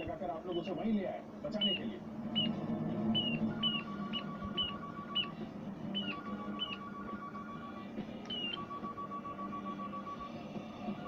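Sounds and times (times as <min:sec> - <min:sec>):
steady electronic tone: 0:01.7 - 0:11.0
toy gun high chirps: 0:08.3 - 0:08.7.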